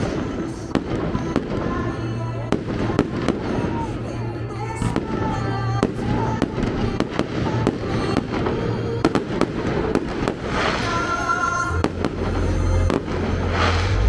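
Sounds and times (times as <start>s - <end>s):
fireworks bangs and crackles: 0.0s - 14.0s
music playing: 0.0s - 14.0s
deep bass: 11.7s - 14.0s.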